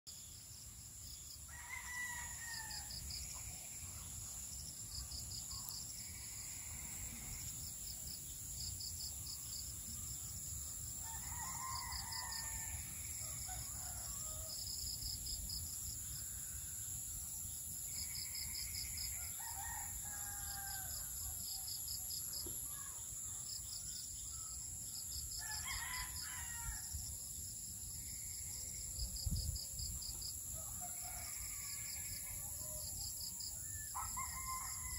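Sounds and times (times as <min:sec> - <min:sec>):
insects droning: 0:00.1 - 0:34.9
roosters crowing: 0:01.5 - 0:03.0, 0:11.0 - 0:14.6, 0:19.1 - 0:21.1, 0:25.4 - 0:26.9, 0:34.0 - 0:34.9.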